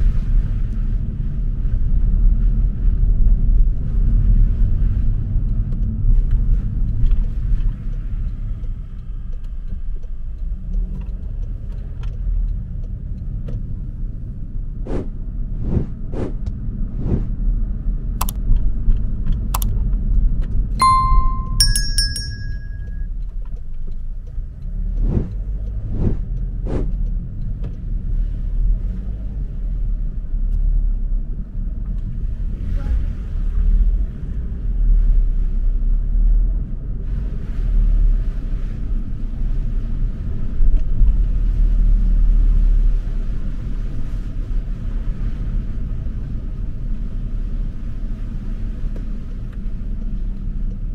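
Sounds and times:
car engine and tyres rumbling: 0.0s - 50.9s
short metallic ring: 20.8s - 23.1s.

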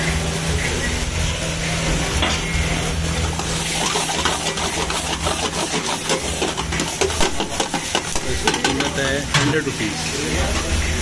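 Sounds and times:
food sizzling in a frying pan: 0.0s - 11.0s
ladle scraping a pan: 3.2s - 9.4s.

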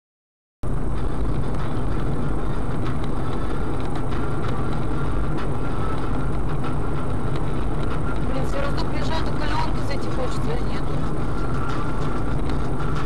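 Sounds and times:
car engine rumble: 0.6s - 13.0s
road noise: 0.6s - 13.0s.

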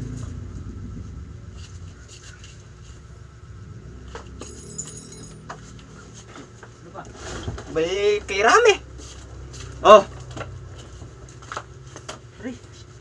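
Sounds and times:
steady low hum: 0.0s - 13.0s
high metallic jingle: 4.3s - 5.8s.

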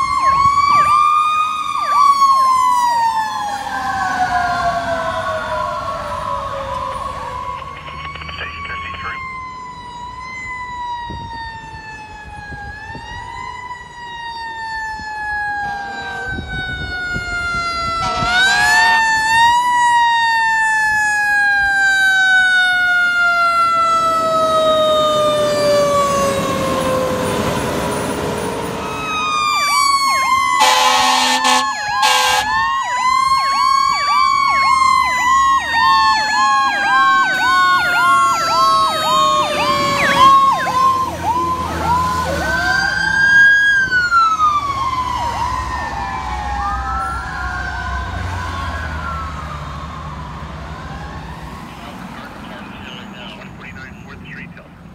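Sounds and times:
siren rapid yelp: 0.0s - 27.6s, 28.6s - 54.6s
fire truck siren wailing: 0.0s - 54.9s
short horn blasts: 30.6s - 32.6s.

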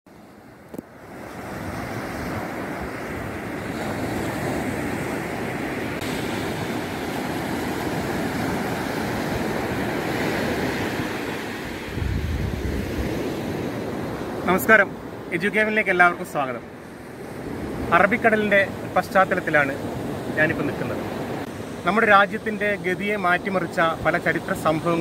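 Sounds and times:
wind rumbling on microphone: 0.6s - 15.2s
surf breaking on beach: 1.0s - 14.6s.

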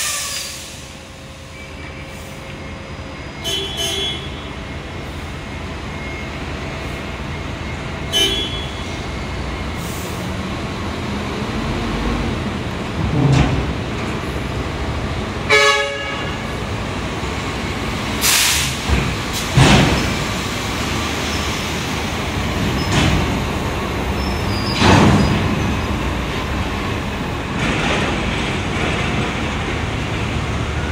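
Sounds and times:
heavy diesel machinery running: 0.0s - 30.9s
air hisses: 18.2s - 19.5s.

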